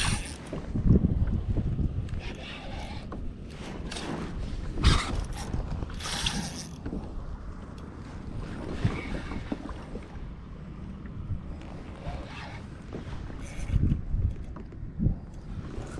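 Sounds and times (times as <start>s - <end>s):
fishing reel gears whirring: 0.0s - 0.4s, 4.8s - 6.8s, 13.3s - 14.0s.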